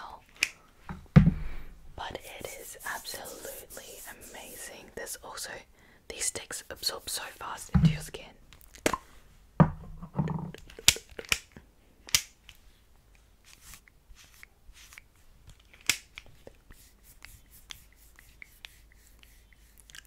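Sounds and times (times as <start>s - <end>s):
plastic stick sharp clicks: 10.6s - 12.4s.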